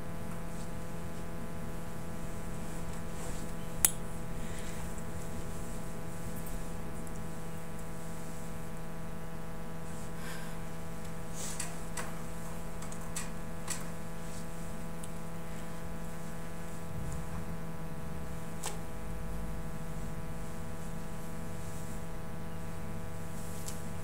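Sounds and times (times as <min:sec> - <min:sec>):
low electrical hum with hiss: 0:00.0 - 0:24.0
rustles: 0:00.4 - 0:08.7.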